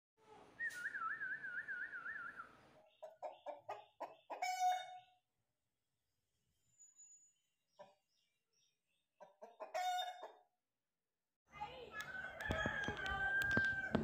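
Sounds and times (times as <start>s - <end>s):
rooster clucking and calling: 3.0s - 5.1s, 9.2s - 10.5s.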